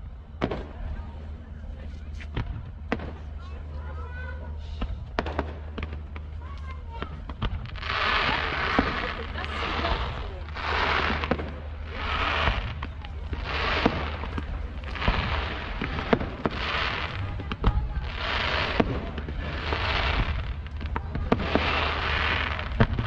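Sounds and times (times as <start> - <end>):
fireworks sharp bangs: 0.4 - 1.0, 2.3 - 23.0
fireworks hissing bursts: 6.9 - 23.0.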